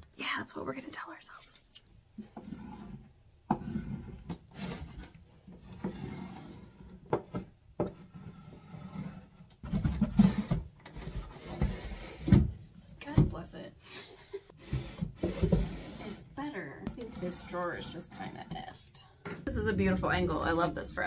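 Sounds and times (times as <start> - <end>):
wooden drawer knocks and scrapes: 14.6 - 16.1
wax scraping on wooden track: 14.6 - 16.3, 16.9 - 18.7.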